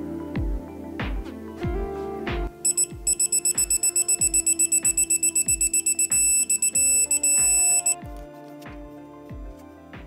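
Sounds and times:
background music with steady beat: 0.0 - 10.0
torque wrench beeping: 2.7 - 8.0.

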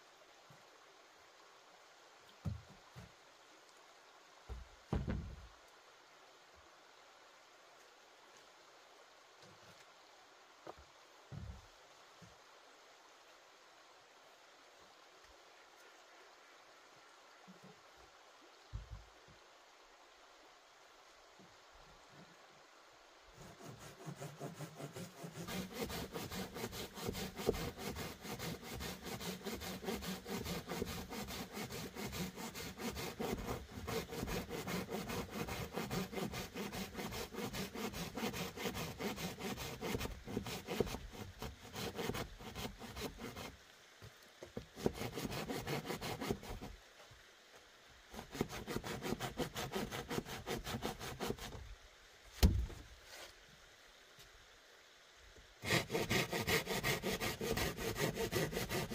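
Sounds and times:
rasping strokes on wood: 23.4 - 43.5, 44.6 - 46.7, 48.1 - 51.6, 55.6 - 58.9
sharp knock: 52.4 - 52.7.

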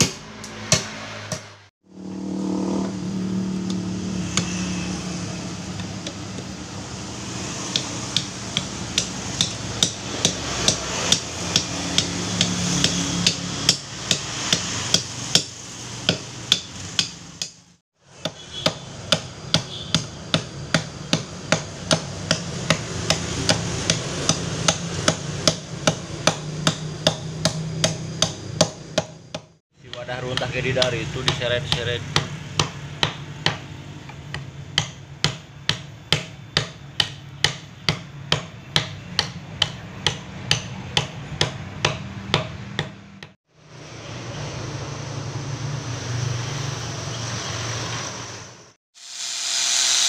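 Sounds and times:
knife chopping wood: 0.0 - 1.5, 3.7 - 4.6, 7.3 - 17.6, 18.2 - 43.4.

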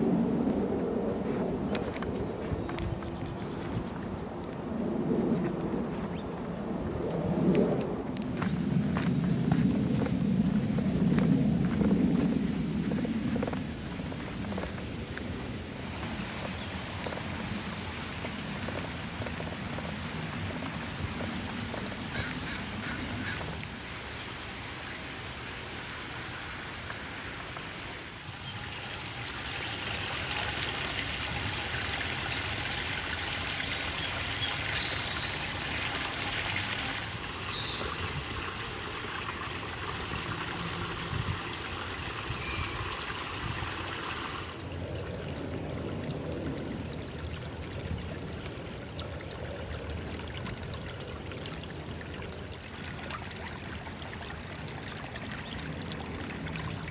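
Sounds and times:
creek trickling over stones: 0.0 - 56.9.

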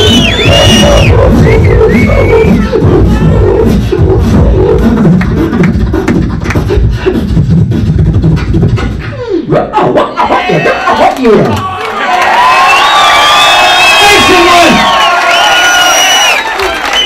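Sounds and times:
beatboxing into microphone: 0.0 - 11.5.

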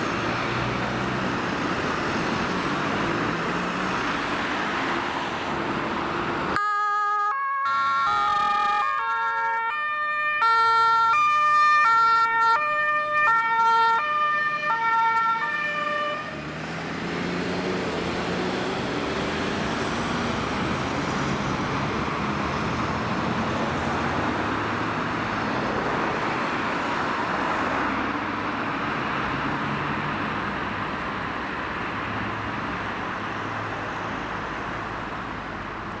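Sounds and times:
road noise and engine rumble: 0.0 - 36.0
two-tone siren: 6.6 - 16.4.

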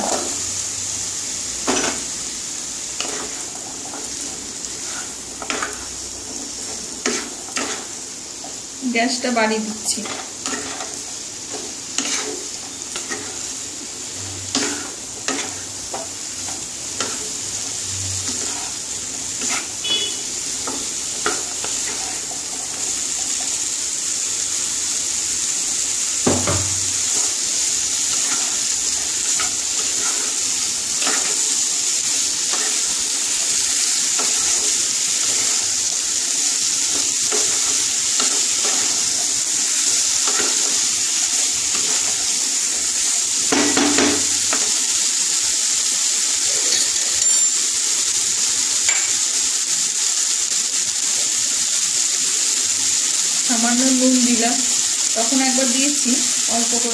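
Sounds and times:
vegetables sizzling in oil: 0.0 - 56.9
spatula knocking and scraping pan: 1.6 - 2.1, 3.0 - 8.6, 9.8 - 13.5, 14.2 - 17.3, 18.2 - 18.8, 19.4 - 23.5, 26.2 - 27.3, 28.1 - 31.5, 40.2 - 40.8, 43.5 - 44.7.

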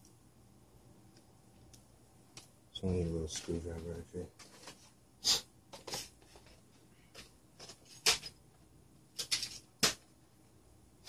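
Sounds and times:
clatters and rustles of rummaging: 2.8 - 5.0, 5.7 - 8.5, 9.1 - 10.1.

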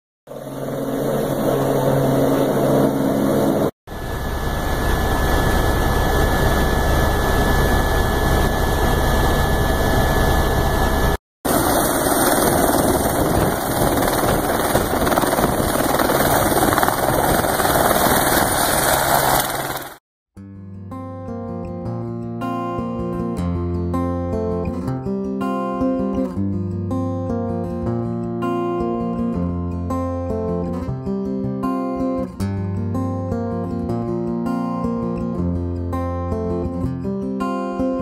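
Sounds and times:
thin steady whine: 0.3 - 17.7
helicopter turbine and rotor: 0.3 - 20.0.

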